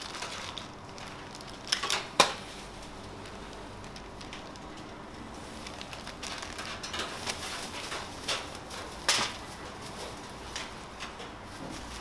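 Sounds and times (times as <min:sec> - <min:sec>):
paper and plastic bags crinkling: 0:00.0 - 0:12.0.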